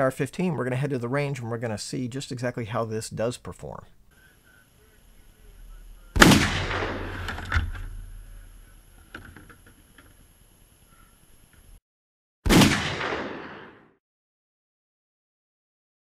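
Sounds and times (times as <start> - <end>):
rifle shot: 5.6 - 8.6, 12.5 - 14.0
loud shot-like crack: 6.1 - 8.4, 12.5 - 13.9.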